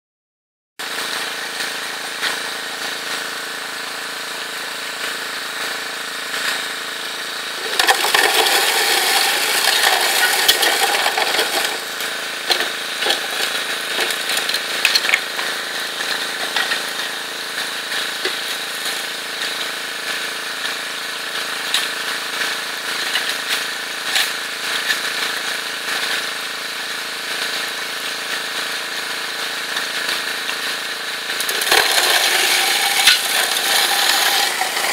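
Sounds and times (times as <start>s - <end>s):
water pump engine running: 0.8s - 34.9s
shovel digging into gravel: 7.6s - 15.5s, 31.4s - 34.9s.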